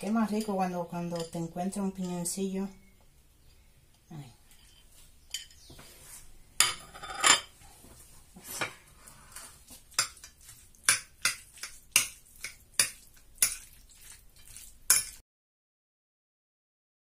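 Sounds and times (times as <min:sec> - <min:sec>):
metal spoon scraping ceramic plate: 0:06.6 - 0:07.5.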